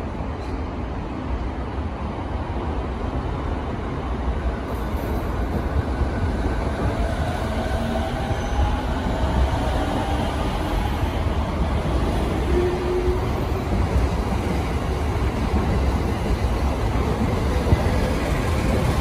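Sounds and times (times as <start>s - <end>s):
train wheels rumbling on rails: 3.8s - 19.0s.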